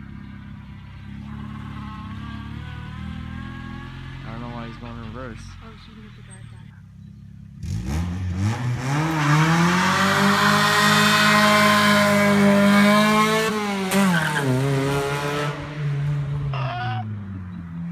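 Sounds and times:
car engine revving past: 0:07.6 - 0:17.9.

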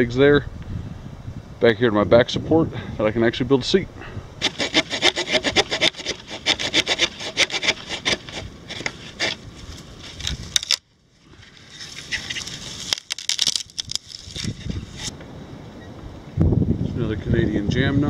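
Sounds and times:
cord rasping against wooden pole: 0:04.4 - 0:09.4
soft hissing rustle: 0:11.1 - 0:13.1.

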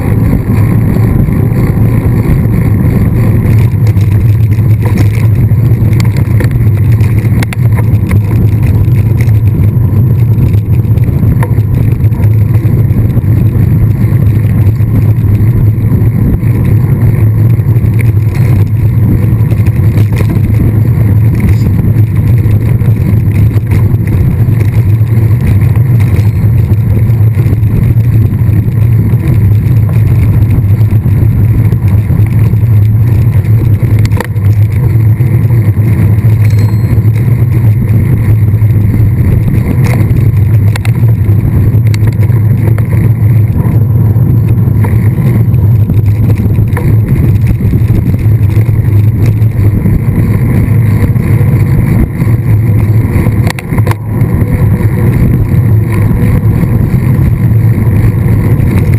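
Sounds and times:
wind buffeting microphone: 0:00.0 - 0:58.9.

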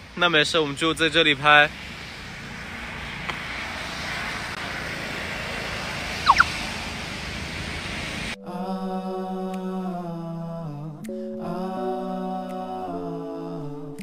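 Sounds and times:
road traffic hum: 0:00.0 - 0:08.4
high rising chirps: 0:06.2 - 0:06.6.

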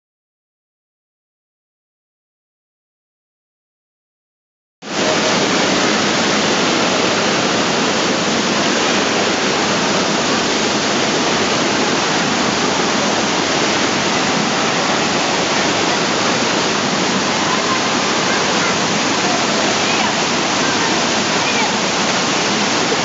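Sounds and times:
rush of churning water: 0:04.8 - 0:23.0.

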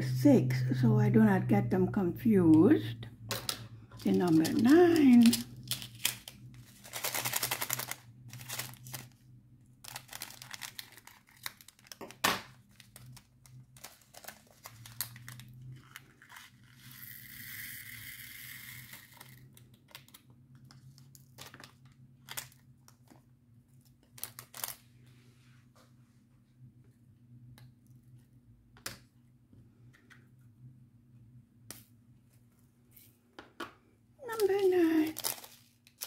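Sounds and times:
plastic bag crinkling: 0:04.0 - 0:16.6, 0:24.0 - 0:24.8, 0:34.2 - 0:36.0.

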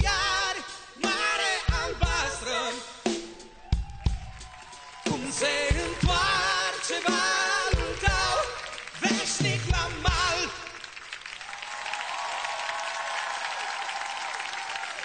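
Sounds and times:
audience applause: 0:03.6 - 0:15.0.

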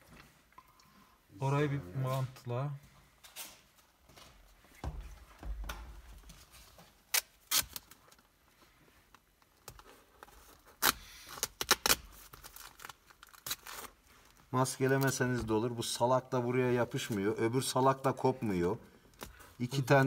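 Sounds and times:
tape crackling and ripping: 0:07.0 - 0:08.3, 0:09.1 - 0:14.4.

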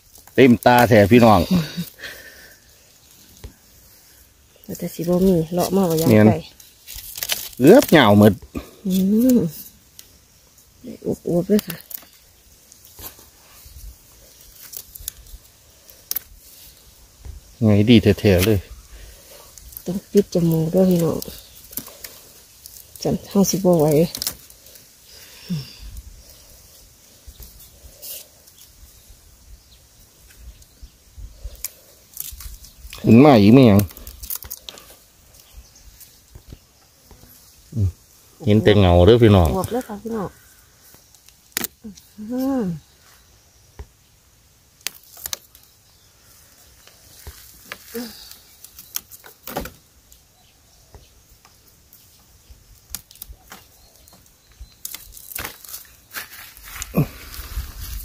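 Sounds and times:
bamboo shoots snapping: 0:00.0 - 0:02.0, 0:04.6 - 0:10.1, 0:11.4 - 0:13.2, 0:14.3 - 0:16.8, 0:19.4 - 0:25.0, 0:31.4 - 0:33.2, 0:33.8 - 0:36.6, 0:39.5 - 0:42.6, 0:44.8 - 0:45.8, 0:46.8 - 0:50.2, 0:52.7 - 0:58.0
bamboo shoots rustling: 0:00.0 - 0:58.0
dry leaves and stems crackling: 0:00.0 - 0:58.0.

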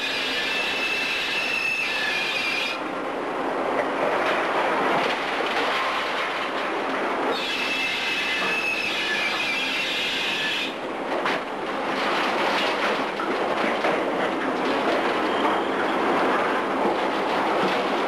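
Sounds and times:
high metallic squeal: 0:00.0 - 0:02.8, 0:07.3 - 0:10.8
excavator machinery and cables: 0:00.0 - 0:18.0.

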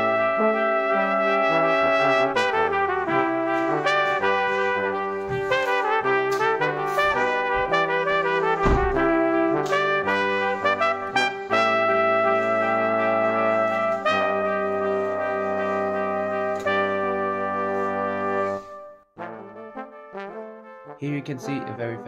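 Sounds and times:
brass melody: 0:00.0 - 0:22.0.

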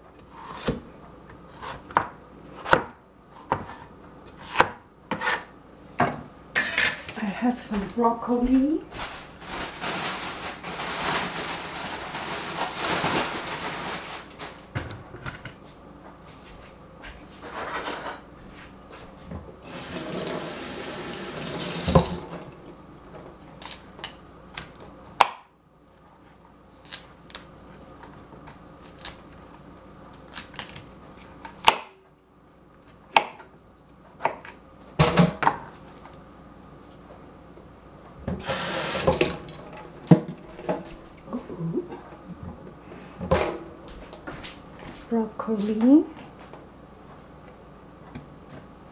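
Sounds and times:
kitchen tap running: 0:19.6 - 0:23.2, 0:38.4 - 0:40.4.

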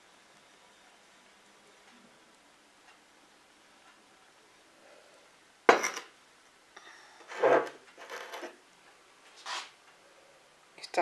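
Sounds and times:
glass mug set down: 0:05.7 - 0:06.1
glass scraping and clinking: 0:05.7 - 0:06.1, 0:07.2 - 0:08.6.

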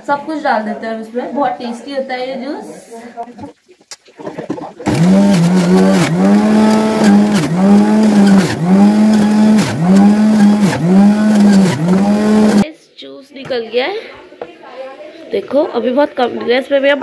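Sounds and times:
electric juicer motor whining: 0:04.9 - 0:12.6.

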